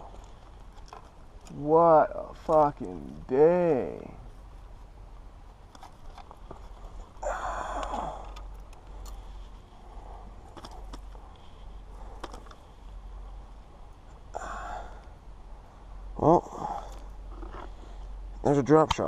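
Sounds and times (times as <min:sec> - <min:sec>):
clicks and rustles among rocks: 0:00.0 - 0:01.6, 0:07.8 - 0:14.3
steady low rumble: 0:00.0 - 0:18.9
man sighing: 0:07.2 - 0:08.4, 0:14.3 - 0:15.1.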